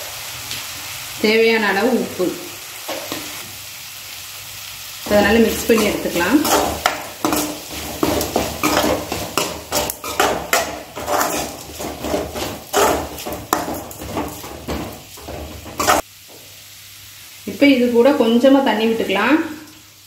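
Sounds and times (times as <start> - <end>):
metal spoon scraping a pan: 5.1 - 16.0.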